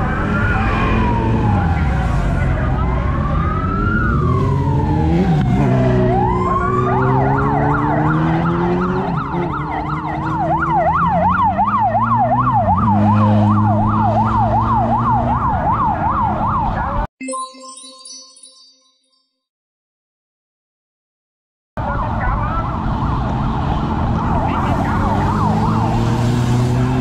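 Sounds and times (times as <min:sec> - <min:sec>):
motorcycle siren wailing and yelping: 0:00.0 - 0:17.1, 0:21.8 - 0:27.0
motorcycle engine revving: 0:03.3 - 0:15.4, 0:23.6 - 0:27.0.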